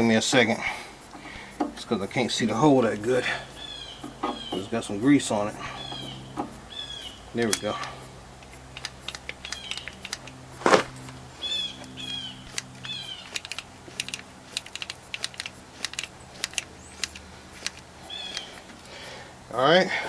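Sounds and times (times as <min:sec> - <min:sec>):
grease gun clicking: 0:07.4 - 0:10.4, 0:11.8 - 0:18.9.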